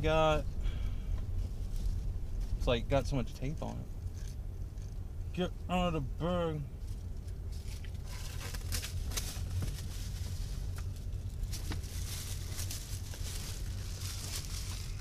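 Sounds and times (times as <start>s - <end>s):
low rumble of car driving: 0.0s - 15.0s
plastic bag crinkling and tearing: 11.9s - 15.0s.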